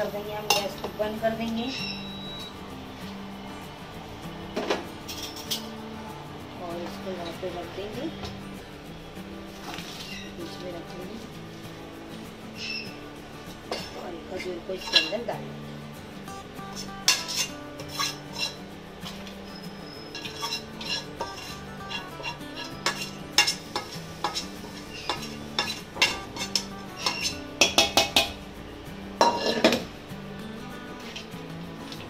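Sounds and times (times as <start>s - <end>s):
metal spoon scraping a pan: 13.7s - 15.3s, 16.6s - 28.4s, 29.2s - 29.9s.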